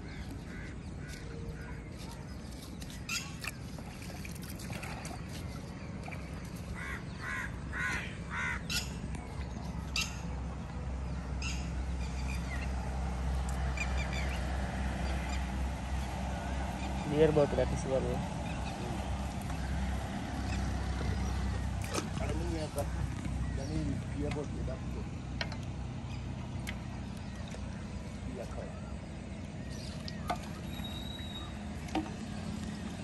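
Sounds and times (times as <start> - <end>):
crows cawing: 6.8 - 8.7.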